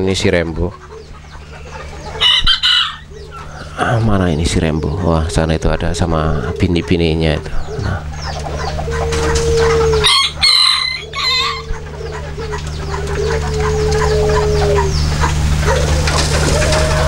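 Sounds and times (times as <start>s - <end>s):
chickens clucking: 0.0s - 17.0s
rooster crowing: 2.0s - 3.4s, 8.5s - 17.0s
hens drawn-out notes: 3.0s - 17.0s.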